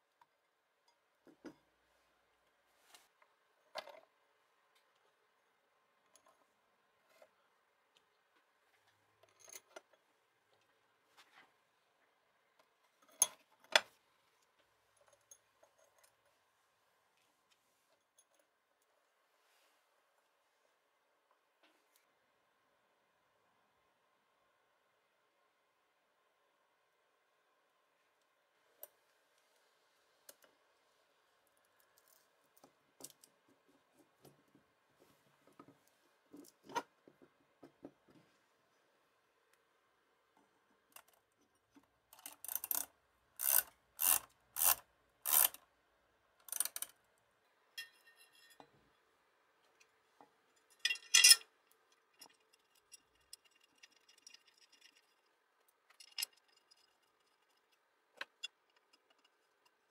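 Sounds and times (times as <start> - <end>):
metal parts clicking and knocking: 40.9 - 45.6, 46.4 - 47.0, 50.6 - 59.9
spanner scraping on nut: 42.2 - 45.6, 50.7 - 55.2, 55.9 - 59.9.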